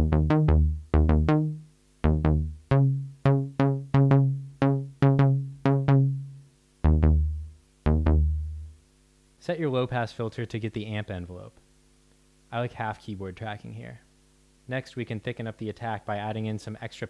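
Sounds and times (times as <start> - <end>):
synthesizer bass notes: 0.0 - 8.8.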